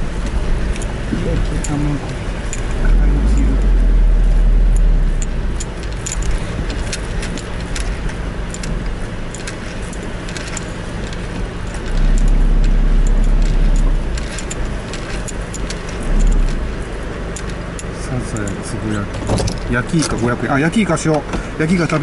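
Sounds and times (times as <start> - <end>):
deep low rumble: 0.0 - 9.0, 11.0 - 17.4
car engine and tyre noise: 0.0 - 22.0
light ticks and rattles: 0.0 - 22.0.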